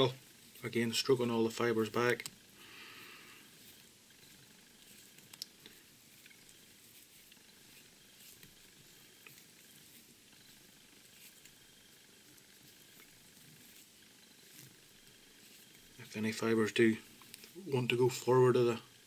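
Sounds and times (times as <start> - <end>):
soft rustles: 0.0 - 18.7
faint room hiss: 0.0 - 19.0
small clicks: 2.0 - 2.4, 5.0 - 6.6.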